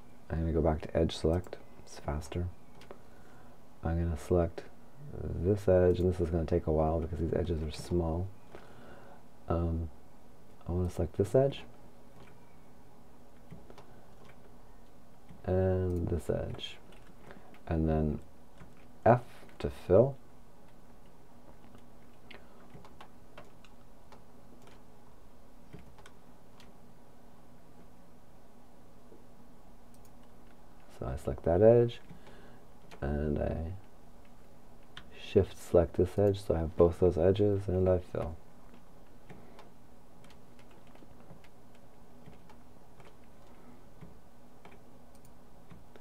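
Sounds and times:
low steady hum: 0.0 - 46.0
computer mouse clicks: 13.4 - 17.7, 20.6 - 24.8, 25.7 - 26.8, 29.9 - 30.6, 38.2 - 46.0.

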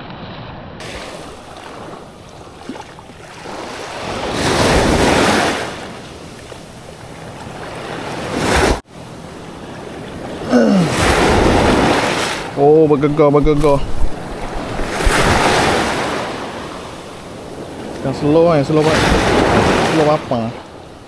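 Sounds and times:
waves washing at shore: 0.0 - 21.0
wind buffeting microphone: 11.0 - 19.8.

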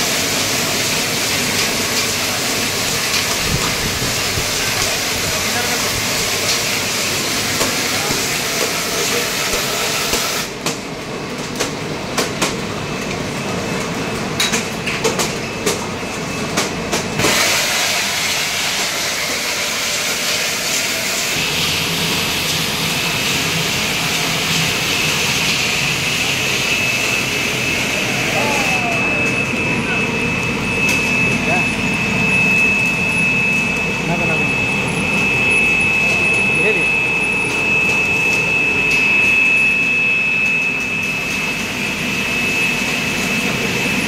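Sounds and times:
bottling line clatter and hiss: 0.1 - 10.5.

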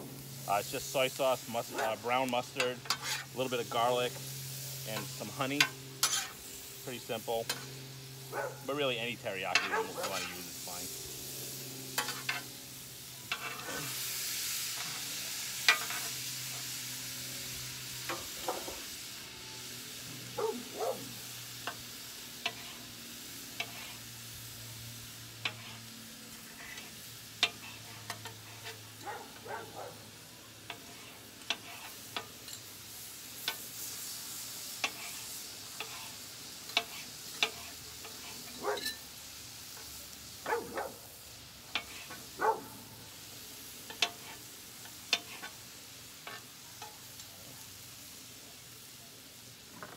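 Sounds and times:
food sizzling on a griddle: 0.0 - 49.9
metal spatulas scraping griddle: 1.6 - 4.2, 4.8 - 6.5, 9.4 - 10.6, 12.0 - 12.5, 13.3 - 14.0, 14.7 - 16.6, 22.4 - 24.1, 25.4 - 29.5, 30.6 - 32.7, 34.6 - 39.1, 41.7 - 42.3, 45.1 - 45.6.

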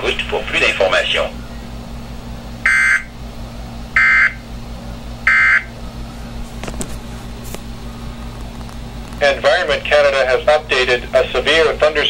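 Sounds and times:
faint steady hum: 0.0 - 12.0
warbling data bursts from radio speaker: 2.7 - 3.1.

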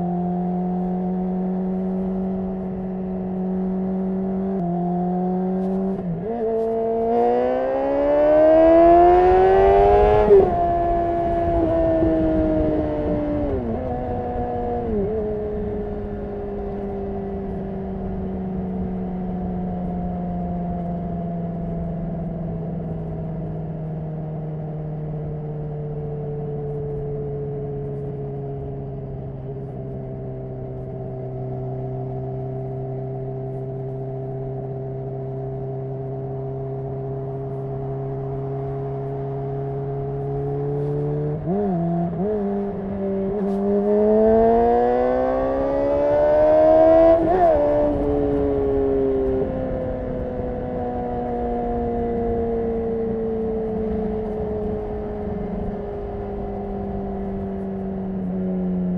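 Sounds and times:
motorcycle engine: 0.0 - 58.9.

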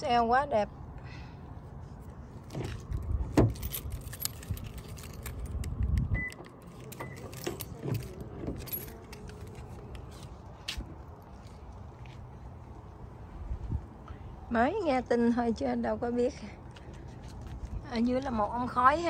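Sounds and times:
car keys jangling: 2.4 - 10.4.

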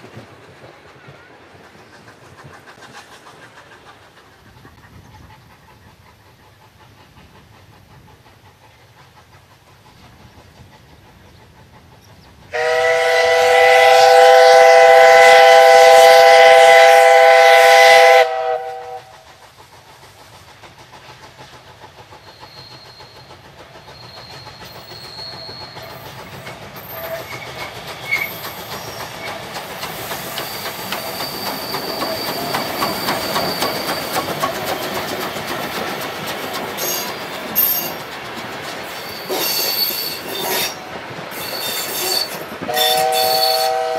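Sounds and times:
train wheels clattering on rail: 0.0 - 43.9
steam whistle blast: 12.5 - 19.2, 41.4 - 43.9.

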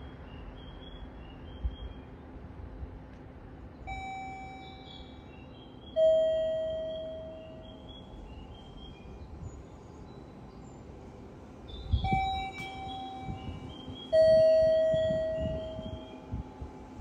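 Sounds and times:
low hum: 0.0 - 17.0
faint chirping: 3.8 - 16.5.

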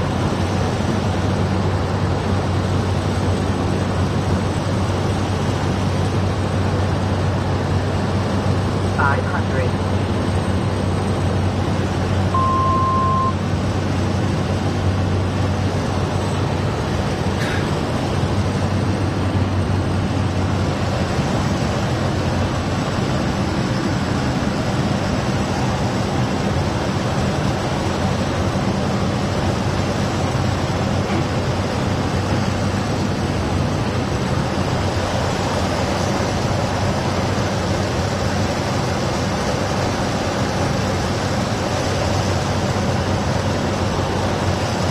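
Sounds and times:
turboprop engine droning: 0.0 - 44.9
short beep: 12.3 - 13.4.

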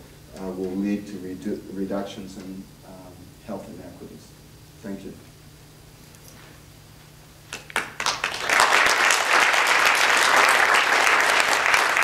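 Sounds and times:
audience applauding: 7.5 - 12.0.

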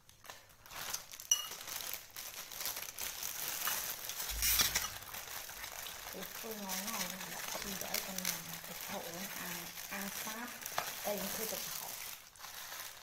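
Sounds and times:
spoon clinking on bowl: 1.3 - 1.6.

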